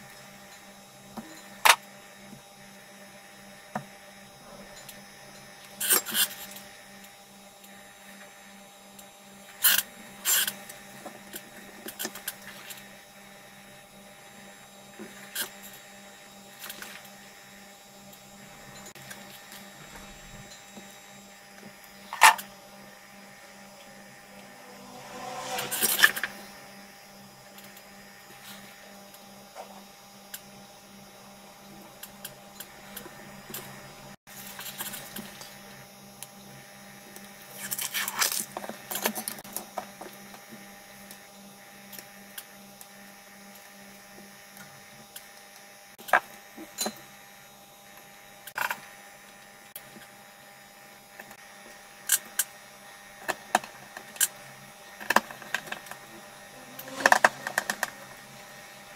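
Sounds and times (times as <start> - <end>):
rustling scrapes: 23.8 - 26.7.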